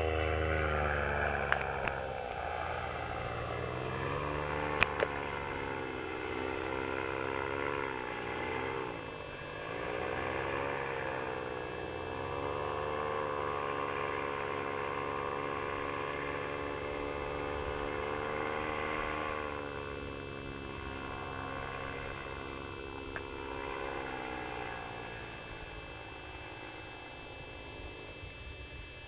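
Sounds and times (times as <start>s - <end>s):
paramotor engine droning: 0.0s - 29.0s.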